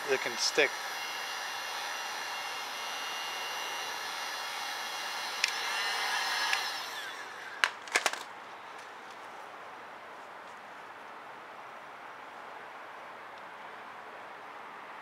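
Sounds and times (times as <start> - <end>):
heat gun blower whine: 0.0 - 8.1
sharp clicks: 5.4 - 5.6.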